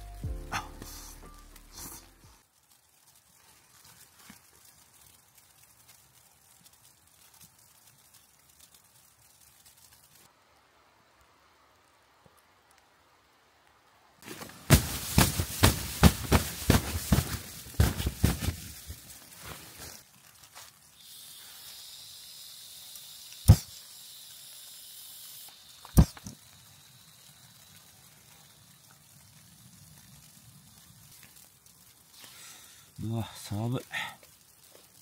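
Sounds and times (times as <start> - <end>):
knocking and crunching handling: 14.2 - 19.0
gas hissing from canister: 20.9 - 28.6.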